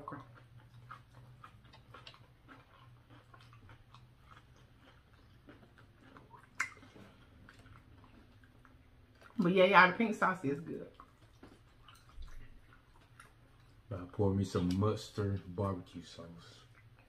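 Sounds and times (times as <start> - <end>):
faint chewing: 0.0 - 17.0
wet mouth clicks: 6.2 - 7.1.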